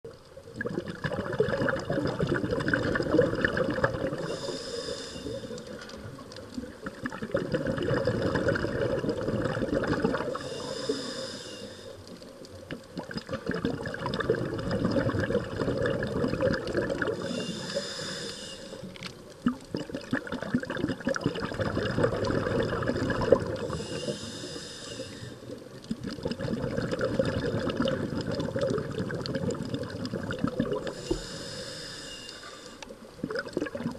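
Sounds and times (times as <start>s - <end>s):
bubbling exhalation: 0.5s - 4.6s, 5.4s - 10.7s, 12.7s - 17.9s, 18.8s - 24.2s, 25.6s - 31.8s, 33.2s - 33.9s
regulator inhalation hiss: 4.2s - 5.7s, 10.3s - 12.1s, 17.2s - 18.9s, 23.7s - 25.6s, 30.9s - 33.0s.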